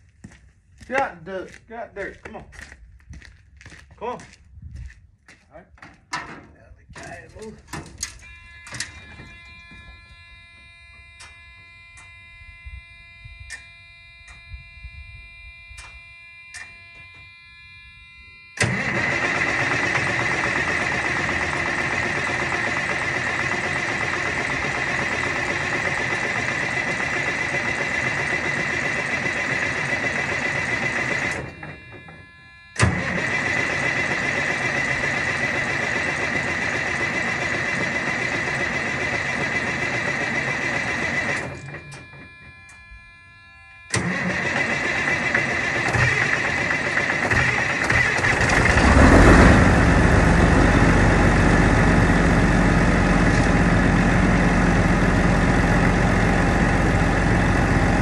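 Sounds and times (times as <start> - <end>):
truck engine cranking: 18.6 - 42.8, 43.9 - 58.0.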